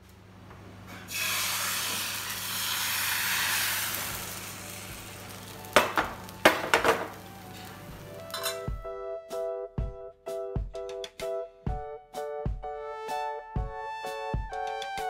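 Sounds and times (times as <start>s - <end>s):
batter sizzling on hot pan: 1.1s - 8.5s.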